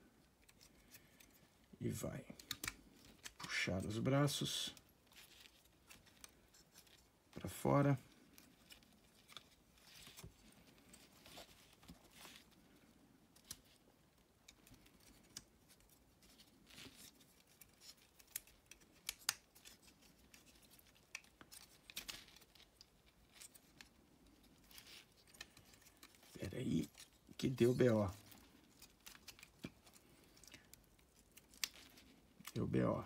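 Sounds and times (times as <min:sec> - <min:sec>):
plastic toy parts clicking: 0:02.4 - 0:03.6.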